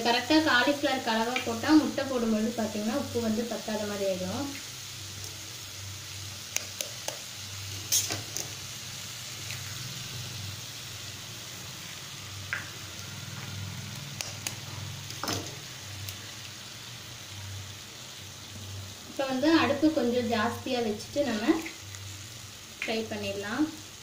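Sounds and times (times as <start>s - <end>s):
food sizzling in a pan: 0.0s - 24.0s
eggs cracking taps and clicks: 6.5s - 7.2s, 14.0s - 14.7s.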